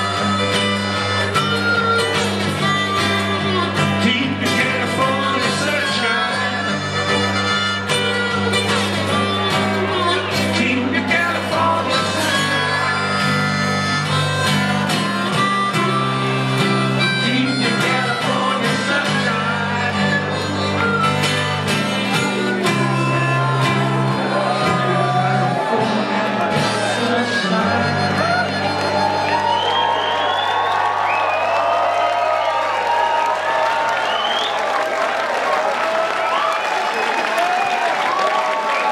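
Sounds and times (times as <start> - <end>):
harmonica playing: 0.0 - 30.8.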